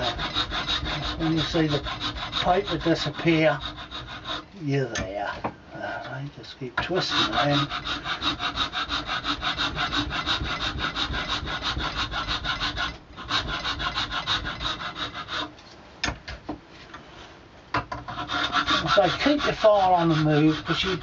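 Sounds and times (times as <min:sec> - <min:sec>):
hand file rasping on wood: 0:00.0 - 0:04.5, 0:06.8 - 0:15.5, 0:18.0 - 0:21.0.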